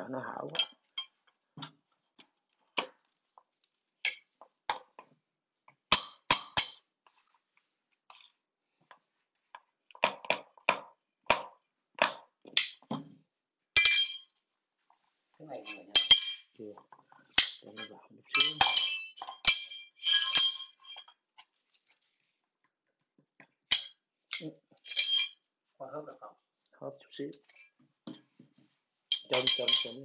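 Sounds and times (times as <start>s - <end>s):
ringing clinks: 13.8s - 14.3s, 15.7s - 16.6s, 17.4s - 21.1s, 29.1s - 30.0s.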